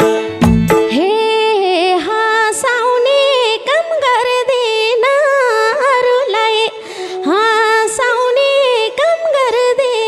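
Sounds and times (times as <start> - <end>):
hand drum playing: 0.0 - 0.9
harmonium: 0.0 - 10.0
woman singing: 0.8 - 10.0.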